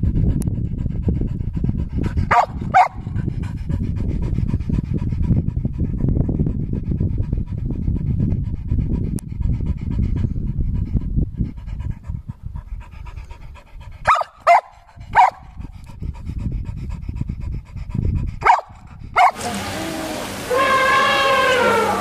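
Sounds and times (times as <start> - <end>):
dog panting: 0.2 - 19.1
dog barking: 2.3 - 3.0, 14.1 - 15.4, 18.4 - 19.6.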